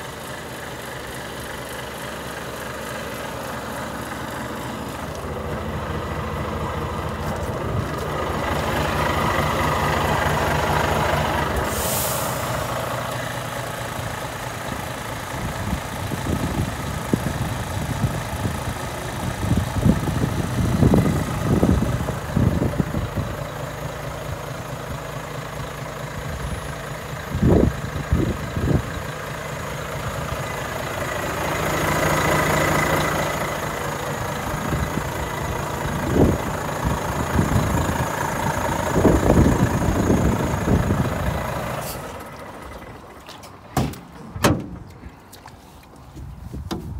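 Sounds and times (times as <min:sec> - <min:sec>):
diesel engine idling: 0:00.0 - 0:45.5
air hiss: 0:11.6 - 0:12.7.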